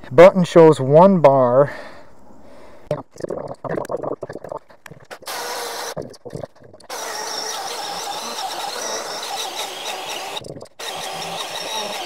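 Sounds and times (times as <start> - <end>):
electric chainsaw cutting log: 5.1 - 6.0, 6.9 - 12.0.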